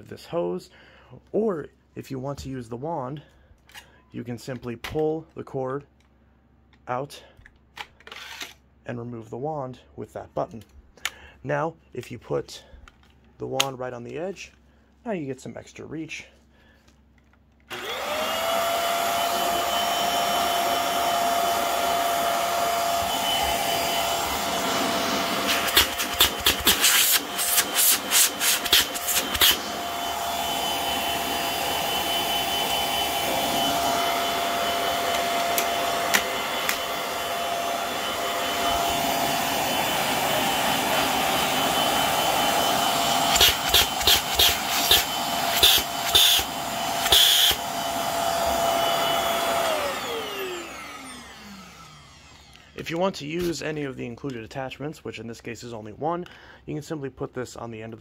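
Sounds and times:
vacuum cleaner running: 0:17.7 - 0:52.8.

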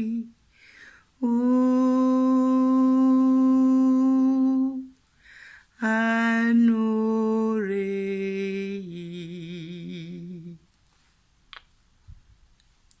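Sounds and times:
woman singing wordless tone: 0:00.0 - 0:00.4, 0:01.2 - 0:05.0, 0:05.8 - 0:10.7.

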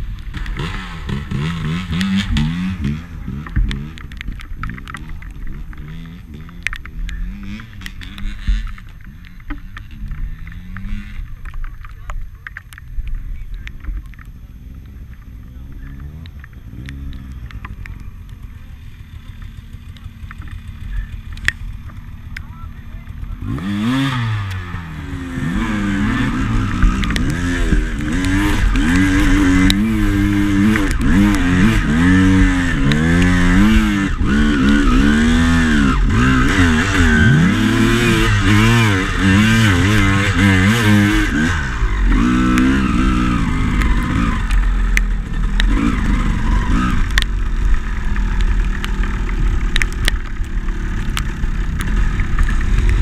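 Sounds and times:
dirt bike engine revving: 0:00.0 - 0:12.1, 0:12.8 - 0:53.0
knocks and clatter from bike: 0:00.0 - 0:53.0.

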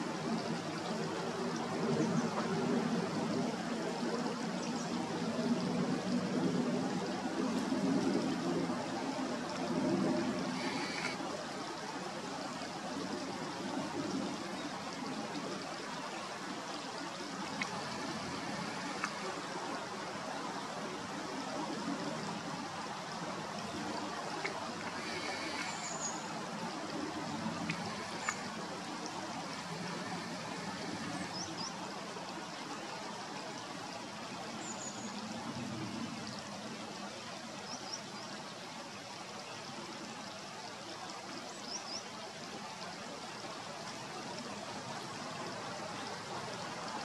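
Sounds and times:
stream trickling: 0:00.0 - 0:47.0.

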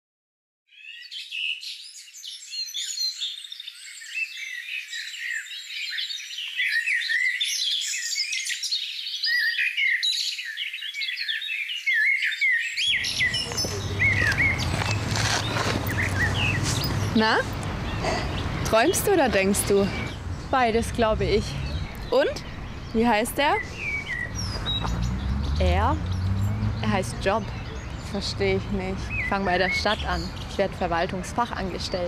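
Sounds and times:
songbirds chirping: 0:00.7 - 0:32.0
low outdoor rumble: 0:13.0 - 0:32.0.

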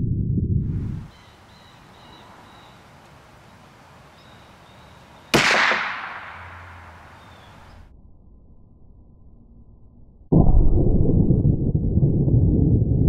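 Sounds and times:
rifle shot with echo: 0:05.3 - 0:06.9.

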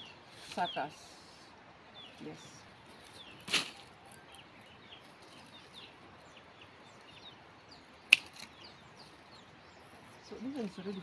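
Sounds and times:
birds chirping: 0:00.0 - 0:11.0
pruning shears snapping shut: 0:08.1 - 0:08.5.

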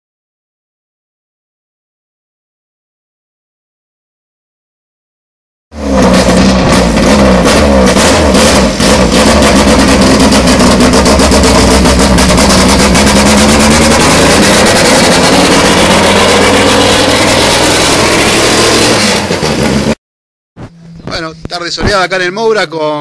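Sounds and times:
car engine revving: 0:05.8 - 0:20.0.

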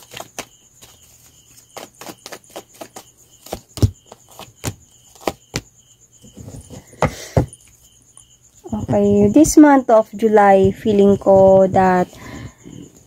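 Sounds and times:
cards shuffled by hand: 0:00.0 - 0:05.6.

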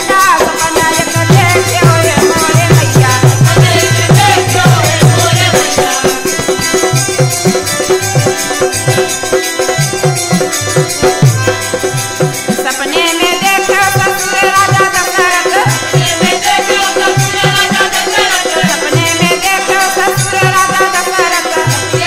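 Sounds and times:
hand drum beating: 0:00.0 - 0:22.0
ornamented melody: 0:03.1 - 0:13.1.

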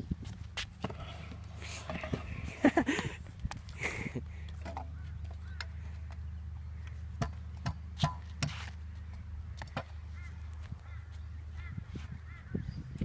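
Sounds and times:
bird calling: 0:04.8 - 0:07.0, 0:09.0 - 0:13.0
scooter knocking on concrete and metal: 0:07.2 - 0:08.5.

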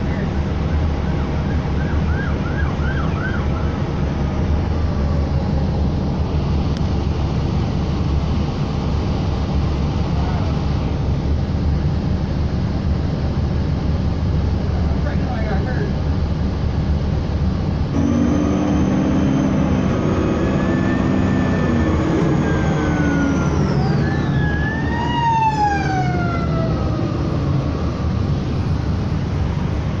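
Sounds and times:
road and engine rumble: 0:00.0 - 0:30.0
emergency vehicle siren passing: 0:01.0 - 0:06.1, 0:18.0 - 0:29.8.

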